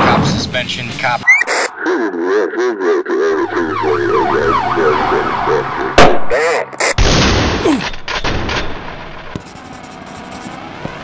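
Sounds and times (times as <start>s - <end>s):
police siren yelping: 1.2s - 6.9s.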